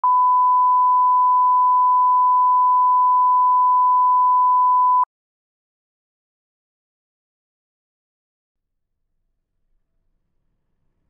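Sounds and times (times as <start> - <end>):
steady reference tone beep: 0.0 - 5.1.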